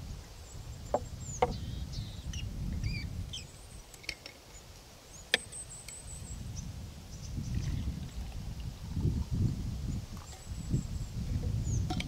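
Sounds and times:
small birds chirping: 0:00.3 - 0:08.2, 0:09.8 - 0:12.0.

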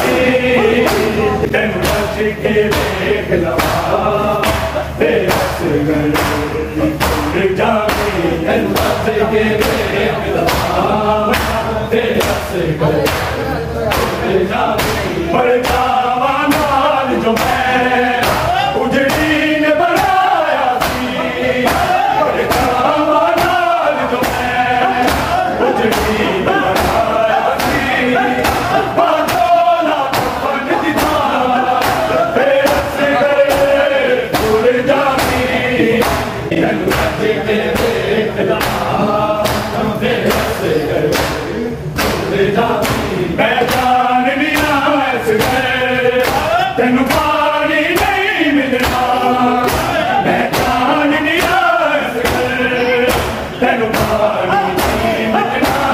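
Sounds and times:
men chanting in chorus: 0:00.0 - 0:55.9
hands slapping chests: 0:40.3 - 0:43.9.

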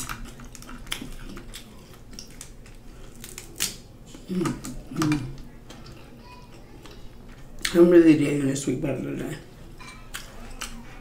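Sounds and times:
crab shells cracking: 0:00.0 - 0:07.0.

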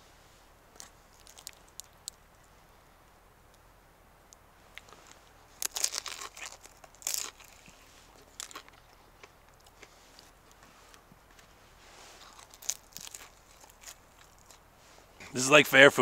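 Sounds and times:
chewing crispy food crunching: 0:00.7 - 0:02.3, 0:04.7 - 0:14.6.

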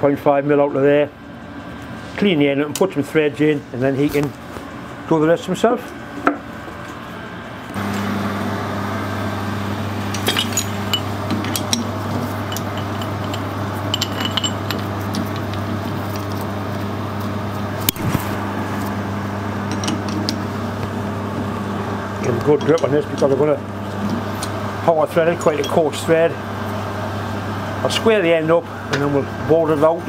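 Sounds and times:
steady electrical hum: 0:00.0 - 0:30.0
metal clinks and knocks: 0:10.1 - 0:15.5.

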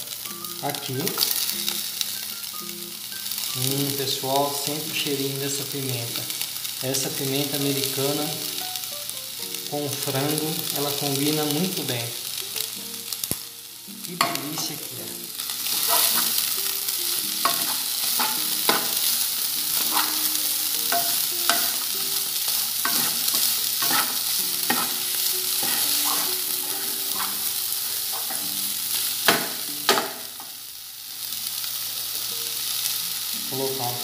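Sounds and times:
food sizzling in frying pan: 0:00.0 - 0:34.0
wooden spoon scraping pan: 0:22.9 - 0:25.0, 0:25.6 - 0:27.5.

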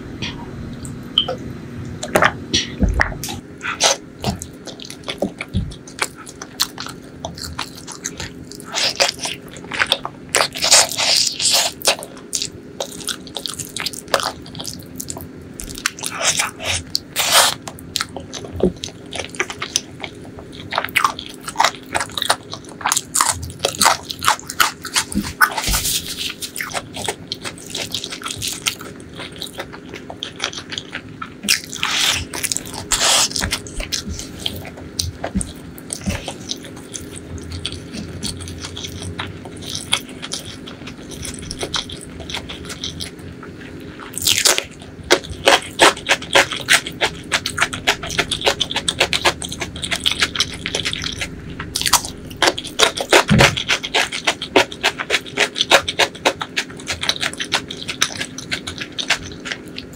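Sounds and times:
person chewing food: 0:00.2 - 0:59.9.

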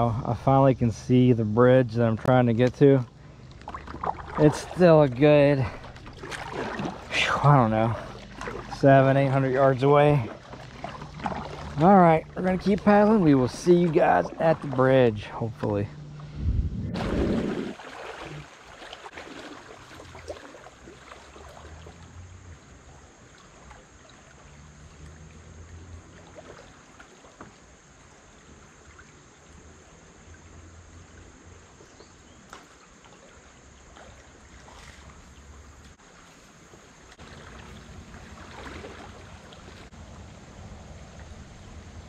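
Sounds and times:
river water over rocks: 0:02.8 - 0:15.9, 0:17.0 - 0:42.0
wind rumble on microphone: 0:16.1 - 0:17.8.

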